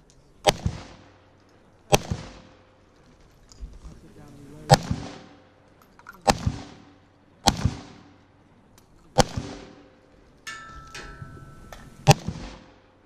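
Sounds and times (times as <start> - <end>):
rifle shots with echo: 0.4 - 3.0, 4.7 - 5.6, 6.2 - 8.4, 9.1 - 10.2, 11.6 - 13.0.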